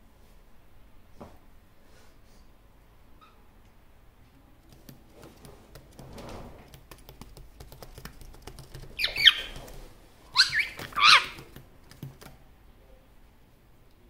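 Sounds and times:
parrot loud call: 0:09.0 - 0:09.7, 0:10.3 - 0:11.5.

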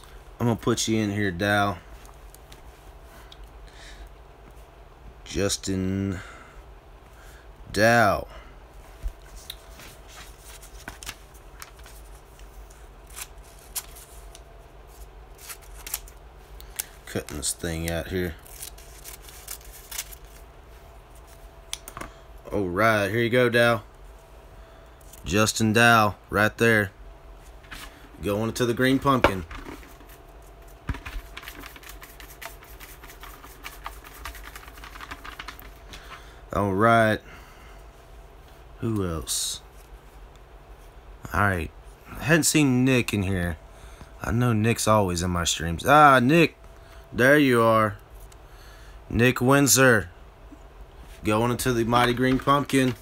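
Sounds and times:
faint steady hum: 0:00.0 - 0:53.0
paper rustling: 0:09.2 - 0:20.4, 0:27.6 - 0:36.3, 0:51.2 - 0:53.0
paper slips rattling in plastic pail: 0:16.8 - 0:20.4, 0:30.8 - 0:36.3, 0:51.4 - 0:53.0.

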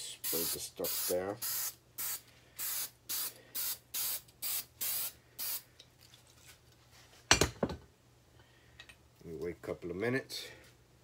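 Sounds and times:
aerosol spray bursts: 0:00.2 - 0:05.6.

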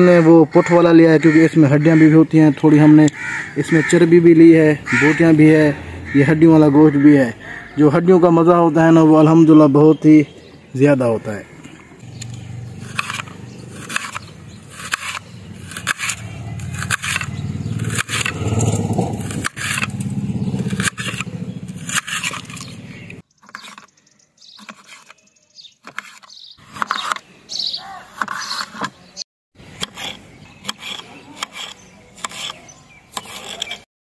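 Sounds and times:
knife slicing vegetables: 0:12.8 - 0:19.9, 0:20.6 - 0:22.7.

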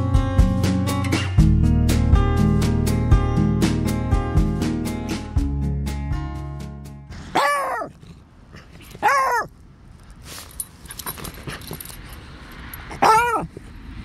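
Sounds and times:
dog barking: 0:07.2 - 0:08.0, 0:09.0 - 0:09.5, 0:12.9 - 0:13.6.

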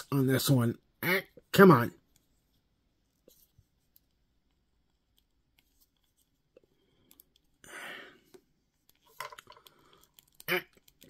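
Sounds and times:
plastic parts clicking: 0:08.8 - 0:11.0.

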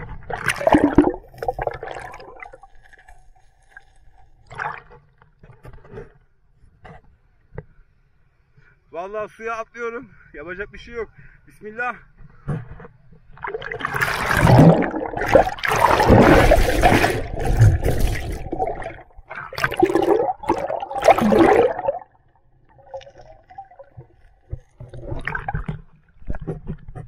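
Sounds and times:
water splashing: 0:00.0 - 0:03.8, 0:13.3 - 0:26.8
underwater bubbling: 0:00.0 - 0:05.2, 0:13.2 - 0:27.0.

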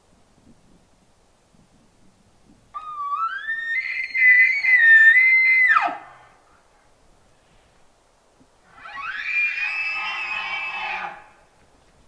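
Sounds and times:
elk bugling: 0:02.8 - 0:06.4, 0:08.7 - 0:11.4.

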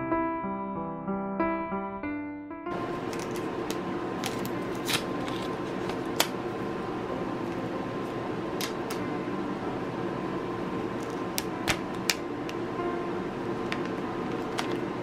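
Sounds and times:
steady background hum: 0:02.7 - 0:15.0
plastic film crackling: 0:03.0 - 0:06.3.

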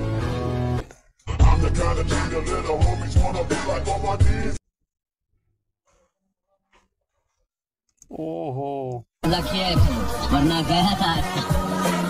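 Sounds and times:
music with bass beat and vocals: 0:01.3 - 0:04.6, 0:09.2 - 0:12.0.

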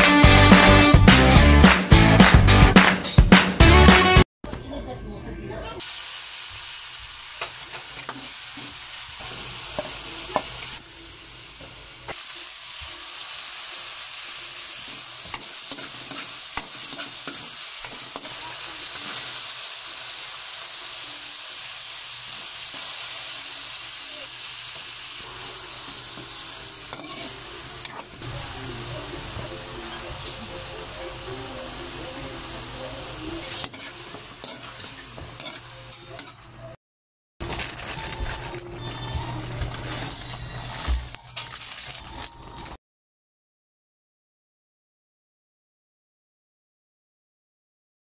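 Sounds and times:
meat sizzling in hot oil: 0:05.8 - 0:35.6
metal spatula scraping wok: 0:14.8 - 0:19.4, 0:25.3 - 0:28.2, 0:33.2 - 0:36.7.

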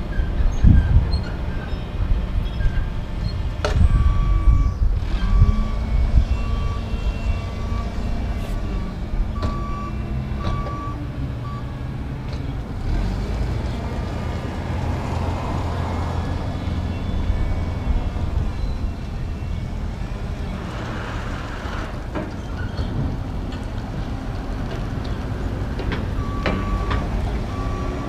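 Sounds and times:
forklift backup alarm beeping: 0:03.2 - 0:11.9, 0:16.2 - 0:20.7, 0:26.1 - 0:28.0.

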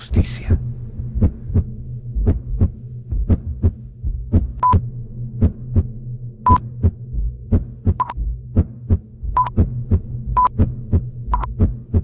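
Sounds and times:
steady low hum: 0:00.0 - 0:12.0
heartbeat double thump: 0:00.5 - 0:12.0
heart monitor beep: 0:04.6 - 0:04.8, 0:07.9 - 0:08.3, 0:09.3 - 0:09.7, 0:10.3 - 0:11.5.

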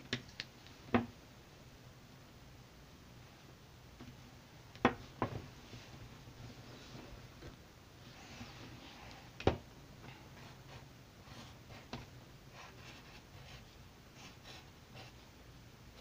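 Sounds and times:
pencil scratching on paper: 0:12.5 - 0:15.2.

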